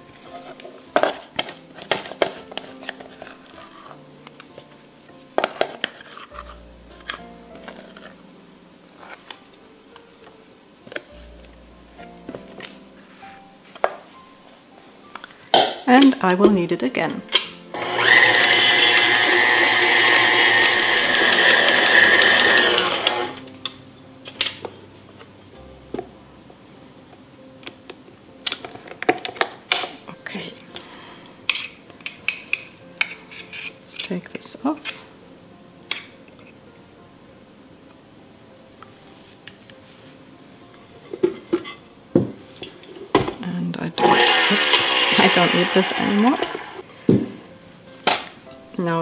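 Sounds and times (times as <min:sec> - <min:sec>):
plastic scraper scraping dough: 0:01.8 - 0:04.0, 0:05.8 - 0:08.2, 0:17.8 - 0:23.4
stand mixer motor whine: 0:17.8 - 0:23.4, 0:44.0 - 0:46.8.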